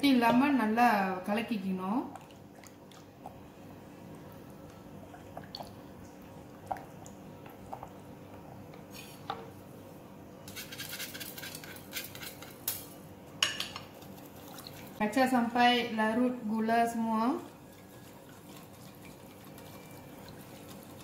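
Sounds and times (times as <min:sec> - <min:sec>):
spatula scraping glass bowl: 0:10.5 - 0:12.6
whisk beating against bowl: 0:17.5 - 0:21.0.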